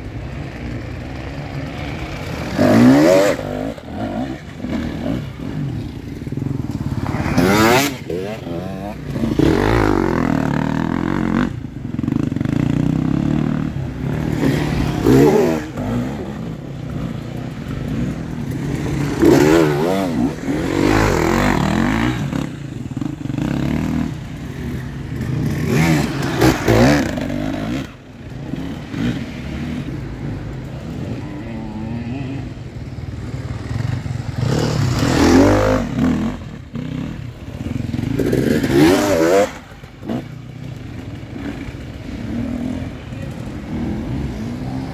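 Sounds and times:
dirt bike engines revving: 0:00.0 - 0:44.9.

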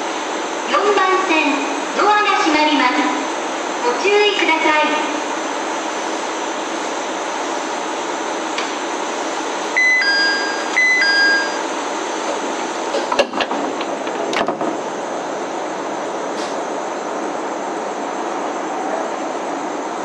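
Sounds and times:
diesel railcar running: 0:00.0 - 0:20.0
train doors shutting: 0:09.7 - 0:17.4
two-note door chime: 0:09.8 - 0:11.6.

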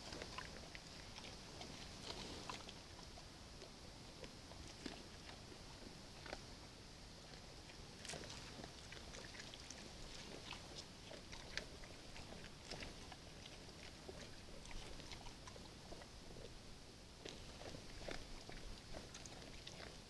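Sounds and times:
bears chewing: 0:00.0 - 0:06.6, 0:07.2 - 0:16.6, 0:17.2 - 0:20.0.

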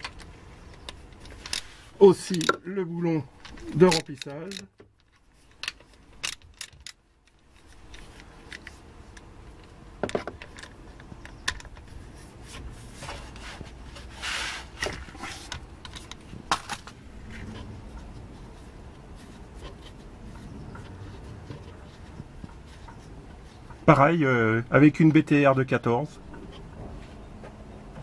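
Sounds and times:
hex key clicking and scraping metal: 0:03.4 - 0:09.8
brief rubbing hiss: 0:14.1 - 0:14.8.

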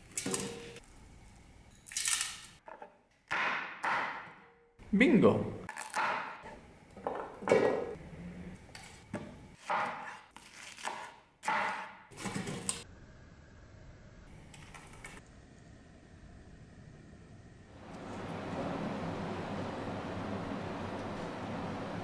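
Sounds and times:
knife chopping on cutting board: 0:09.2 - 0:12.0.

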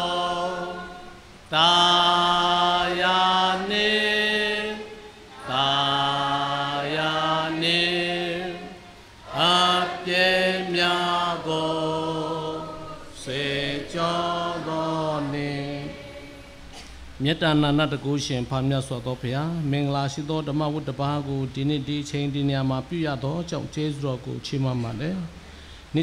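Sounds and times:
congregation singing a hymn: 0:00.0 - 0:17.8.

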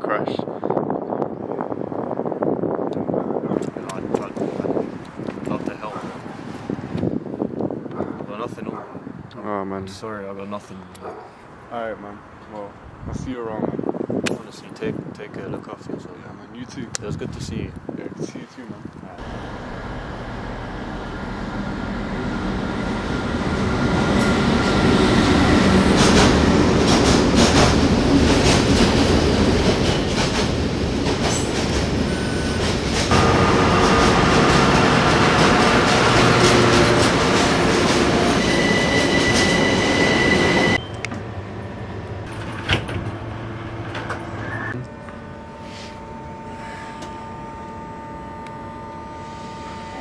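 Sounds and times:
underground train running: 0:19.1 - 0:50.0
low hum: 0:19.2 - 0:25.9
rattling train wheels: 0:19.2 - 0:40.8
high wheel squeals: 0:38.4 - 0:41.1.

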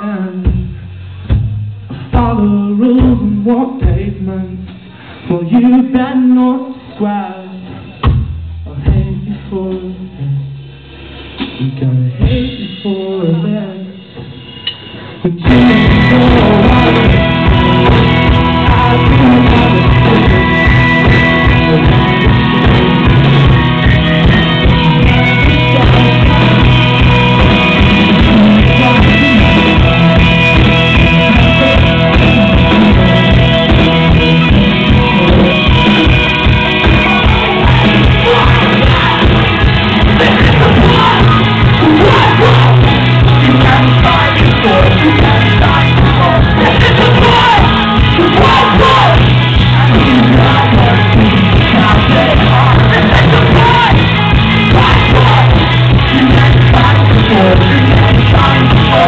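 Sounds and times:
bass: 0:00.0 - 0:59.0
electric guitar: 0:08.8 - 0:59.0
drum beat: 0:15.5 - 0:59.0.

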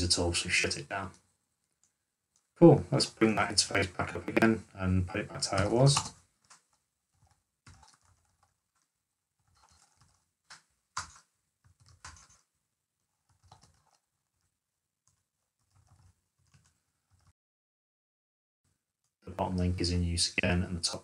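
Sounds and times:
faint keyboard typing: 0:01.0 - 0:02.6, 0:05.4 - 0:17.4.

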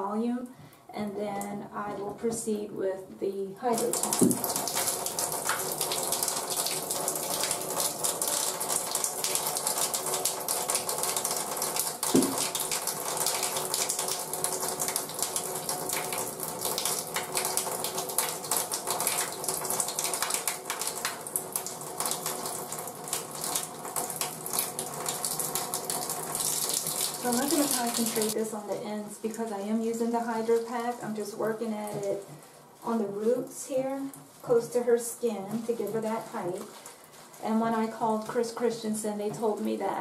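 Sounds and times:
tap water splashing into tub: 0:03.8 - 0:28.4.

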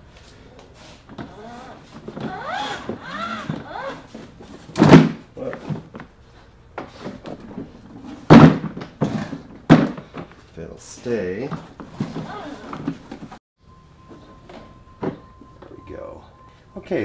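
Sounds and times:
plastic and rubber squeaking: 0:01.0 - 0:05.9, 0:11.4 - 0:13.4.

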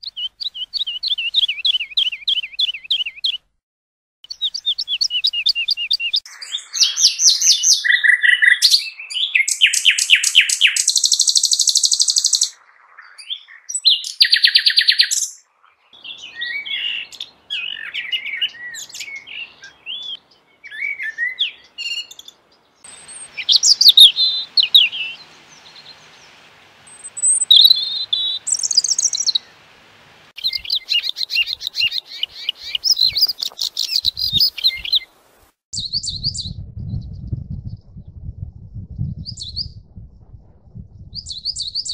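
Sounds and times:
warbled bird phrases: 0:16.0 - 0:22.2, 0:22.9 - 0:29.7, 0:30.4 - 0:35.1
faint hiss: 0:22.1 - 0:35.6
high bird chattering: 0:22.9 - 0:29.5
buzzy bird trills: 0:22.9 - 0:29.6.

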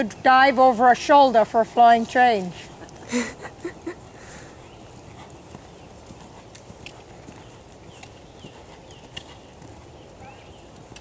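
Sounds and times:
outdoor background noise: 0:00.0 - 0:11.0
horse hoofbeats on sand: 0:04.0 - 0:11.0.

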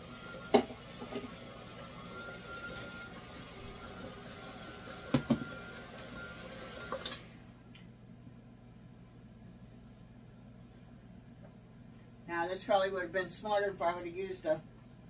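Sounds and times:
stand mixer running: 0:00.0 - 0:07.5.

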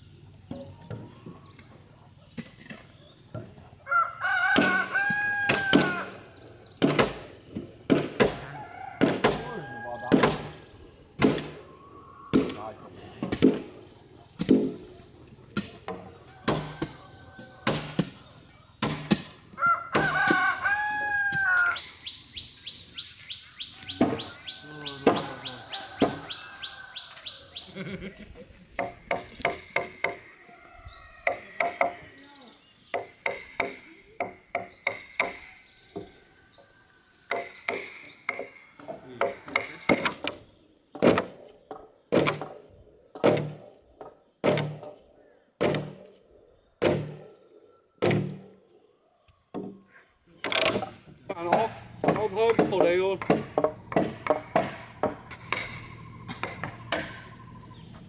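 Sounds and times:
rooster crowing: 0:03.8 - 0:06.2, 0:08.3 - 0:10.4, 0:16.2 - 0:17.9, 0:19.5 - 0:21.9, 0:23.8 - 0:27.8
knocks of work on timber: 0:06.8 - 0:08.4, 0:10.1 - 0:10.6, 0:13.2 - 0:13.8, 0:18.8 - 0:19.3, 0:25.0 - 0:25.4, 0:28.8 - 0:30.2, 0:31.2 - 0:32.1, 0:37.3 - 0:42.6, 0:43.2 - 0:45.0, 0:45.6 - 0:46.1, 0:46.8 - 0:47.2, 0:48.0 - 0:48.5, 0:49.5 - 0:49.8, 0:50.4 - 0:57.3
knocks on wood: 0:51.5 - 0:57.2
wooden mallet striking chisel: 0:51.5 - 0:57.2.

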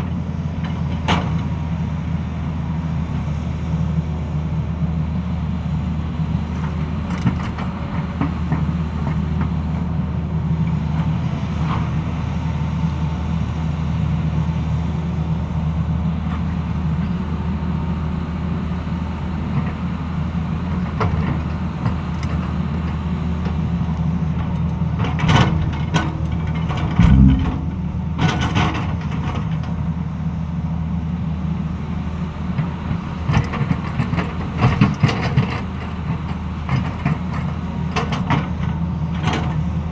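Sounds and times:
excavator diesel engine running: 0:00.0 - 0:39.9
heavy thump: 0:27.0 - 0:28.6.

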